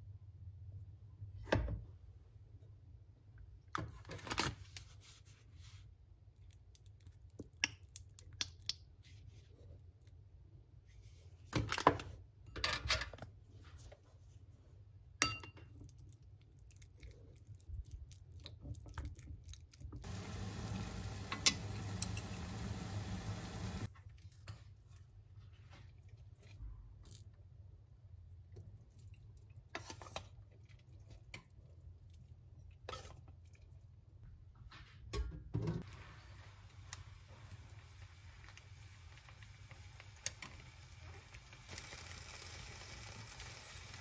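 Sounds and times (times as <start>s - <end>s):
water boiling in pot: 17.5s - 24.0s, 35.8s - 44.0s.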